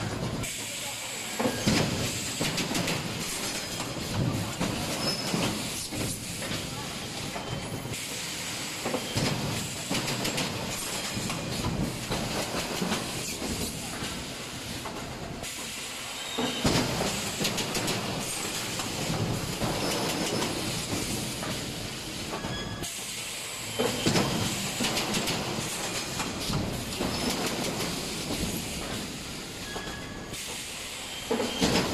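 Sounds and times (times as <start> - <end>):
pneumatic hissing: 0.4 - 31.9.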